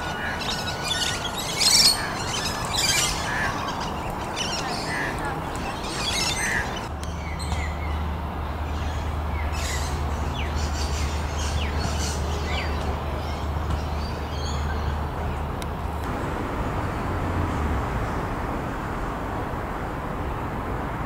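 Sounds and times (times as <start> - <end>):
bird chirps: 0.0 - 8.0.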